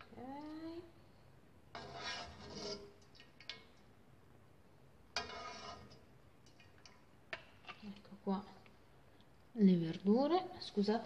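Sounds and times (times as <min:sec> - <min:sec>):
ladle scraping inside a pot: 0:01.7 - 0:03.6, 0:05.1 - 0:08.0.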